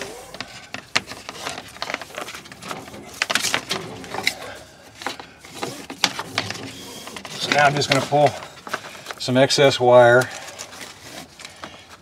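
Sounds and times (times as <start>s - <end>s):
cable scraping on wood: 0.0s - 9.2s.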